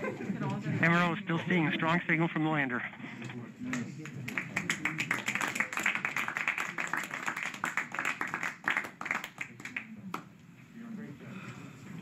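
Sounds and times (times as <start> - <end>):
group of people clapping: 3.6 - 10.3.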